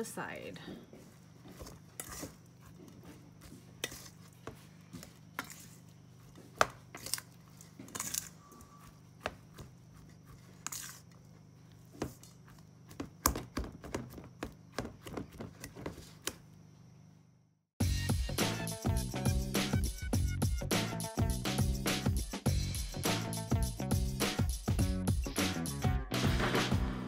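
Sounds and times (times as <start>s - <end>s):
plastic paddle scraping steel bowl: 1.5s - 5.8s.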